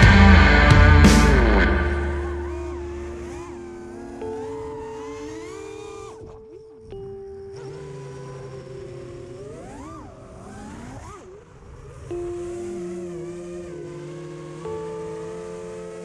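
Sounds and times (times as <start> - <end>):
background music of held notes: 0.0 - 10.0, 12.1 - 16.0
drone motors whining: 0.0 - 16.0.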